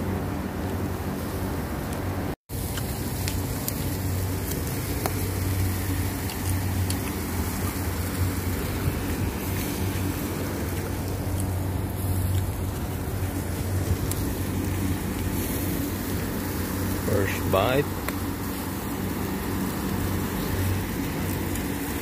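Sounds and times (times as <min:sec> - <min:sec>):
low hum and rushing noise: 0:00.0 - 0:22.0
meat crackling on charcoal grill: 0:02.5 - 0:22.0.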